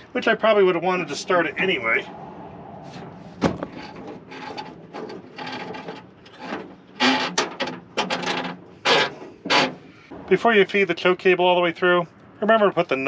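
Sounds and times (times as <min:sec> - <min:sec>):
cable rubbing and scraping: 0:02.8 - 0:09.8.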